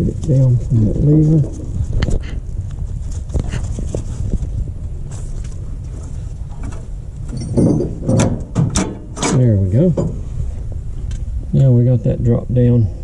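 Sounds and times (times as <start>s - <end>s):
camera handling rumble: 1.5s - 8.6s.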